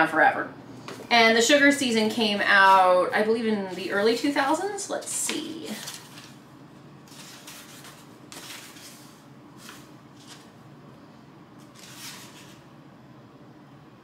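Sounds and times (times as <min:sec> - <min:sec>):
book pages turning: 0:05.0 - 0:06.4, 0:07.0 - 0:10.6, 0:11.6 - 0:12.6.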